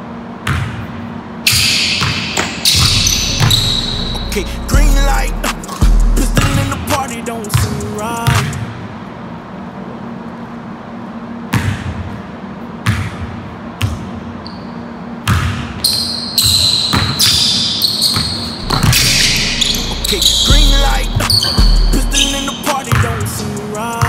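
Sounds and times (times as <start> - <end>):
sneakers squeaking on court: 0.4 - 4.3, 7.5 - 8.7, 12.8 - 24.0
basketball bouncing on wooden floor: 1.5 - 3.7, 7.6 - 8.6, 16.4 - 17.5, 18.1 - 21.8, 22.9 - 23.2.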